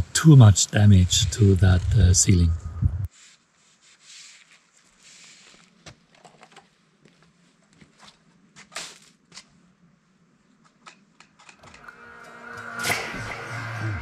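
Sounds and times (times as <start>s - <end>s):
faint low hum: 0.0s - 3.1s
hissy scrape: 3.1s - 5.8s.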